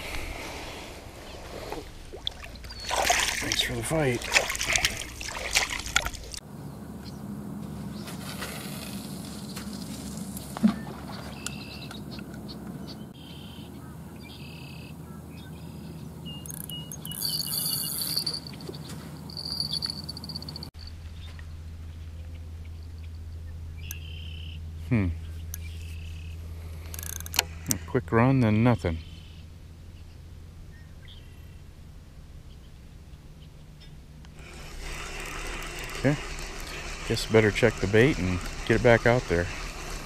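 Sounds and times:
short high chirps: 19.3 - 20.9.

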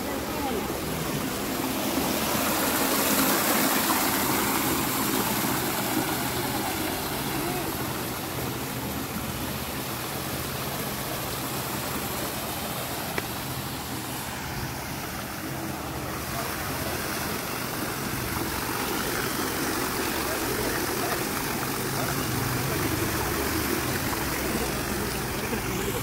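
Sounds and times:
road and wind noise: 0.0 - 20.3
vehicle engine hum: 0.0 - 26.0.

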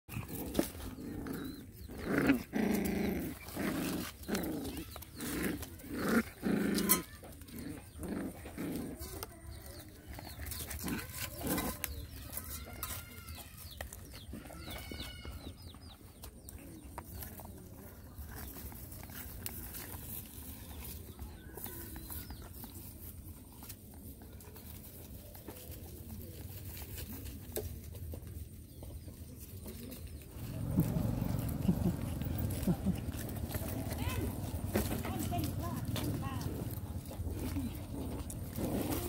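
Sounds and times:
puppies play-growling: 0.1 - 39.0
puppies squeaky calls: 10.2 - 16.1.

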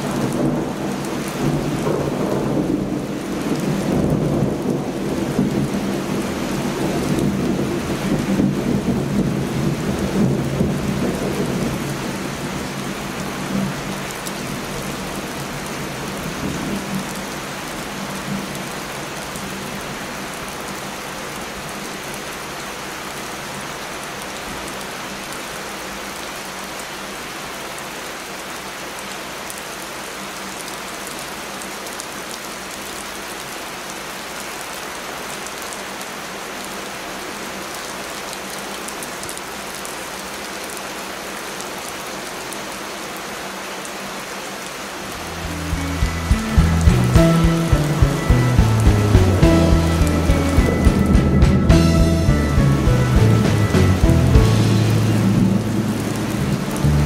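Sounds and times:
rumble of thunder: 0.0 - 13.9
heavy rain: 0.0 - 57.0.

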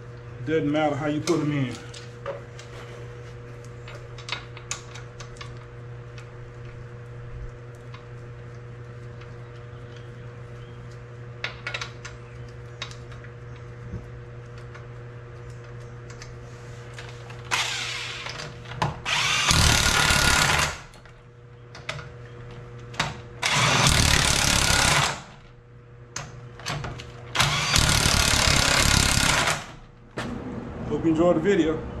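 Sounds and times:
impact wrench bursts: 17.5 - 20.9, 23.4 - 25.4, 27.4 - 29.8.

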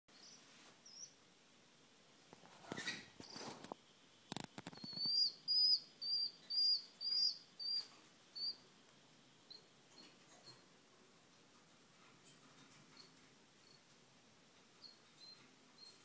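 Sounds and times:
chicks peeping: 4.4 - 8.7.

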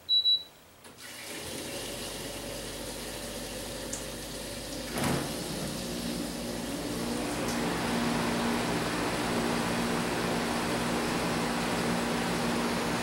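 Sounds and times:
short high beeps: 0.0 - 0.6
air conditioner fan rushing air: 0.8 - 13.0.

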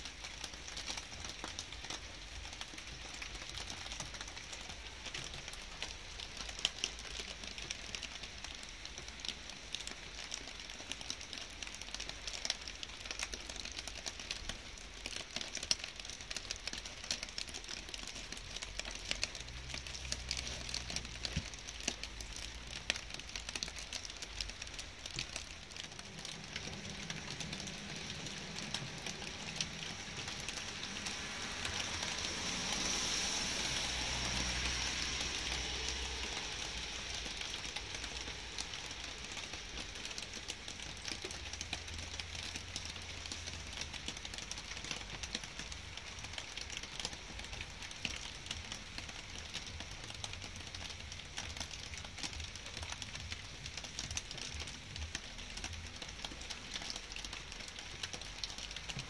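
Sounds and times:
rain patter: 0.0 - 59.0
broad hiss: 29.2 - 40.0.

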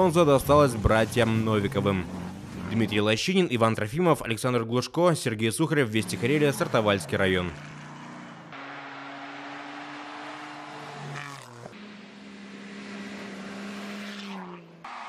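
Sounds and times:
car engine high note: 6.0 - 15.0
car passing close: 6.0 - 15.0.

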